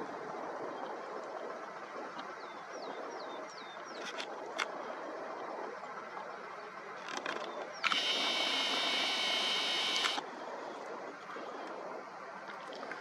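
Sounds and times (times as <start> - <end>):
faint outdoor hiss: 0.0 - 13.0
camera zoom motor whine: 7.8 - 10.2
zoom motor click: 7.8 - 10.2.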